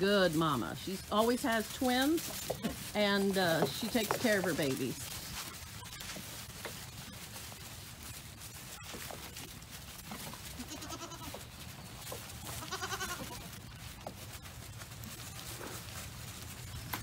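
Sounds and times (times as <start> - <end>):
herd rustling and clicking: 0.0 - 17.0
goats bleating: 10.5 - 11.6, 12.4 - 13.5.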